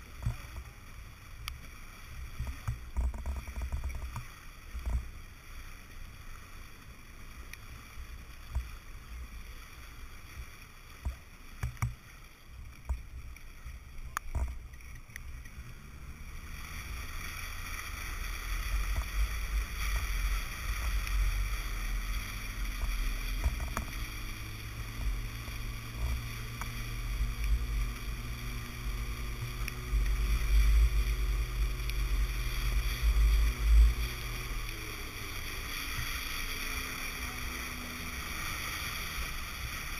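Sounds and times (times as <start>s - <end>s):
water rushing along boat hull: 0.0s - 39.9s
wind rumble on microphone: 0.0s - 39.9s.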